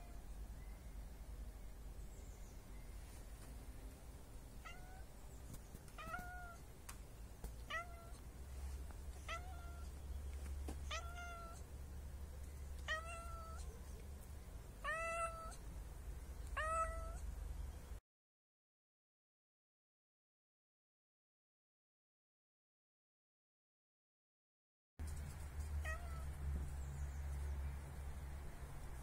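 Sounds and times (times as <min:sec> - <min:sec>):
cat meowing: 0:04.6 - 0:05.1, 0:06.0 - 0:06.6, 0:07.6 - 0:08.2, 0:09.2 - 0:09.9, 0:10.8 - 0:11.6, 0:12.8 - 0:13.7, 0:14.8 - 0:15.6, 0:16.5 - 0:17.2, 0:25.8 - 0:26.4.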